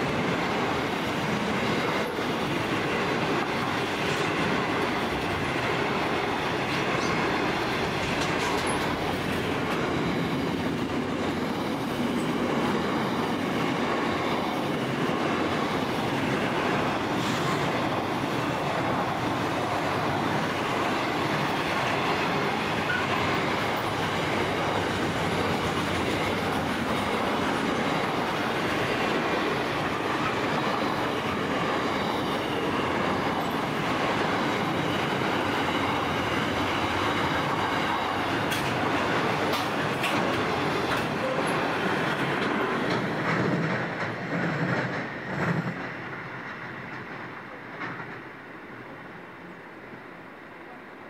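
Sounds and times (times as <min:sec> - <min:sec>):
train wheels on rails: 0:00.0 - 0:51.0.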